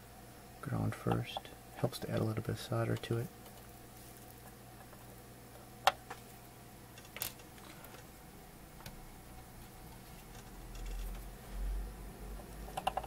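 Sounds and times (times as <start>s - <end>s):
faint steady hum: 0.0s - 13.0s
tools clicking and tapping: 12.6s - 13.0s.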